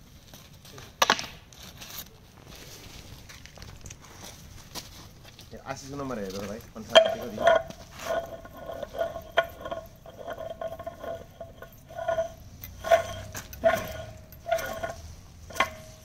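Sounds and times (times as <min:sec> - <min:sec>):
metal knocks with ringing: 0:06.9 - 0:16.0.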